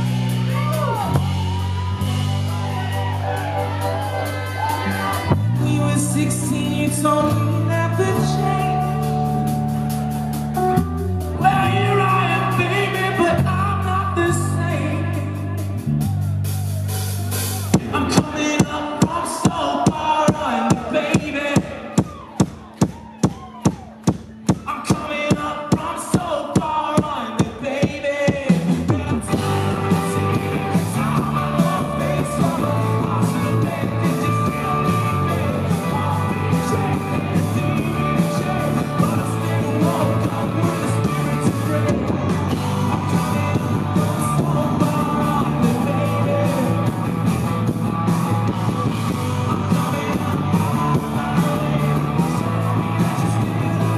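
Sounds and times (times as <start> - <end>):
person singing: 0.0 - 15.9, 17.7 - 22.5, 24.5 - 47.4, 48.2 - 53.9
electric guitars: 0.0 - 18.8, 28.6 - 53.9
live rock band: 0.0 - 53.9
drum beat: 17.2 - 53.9.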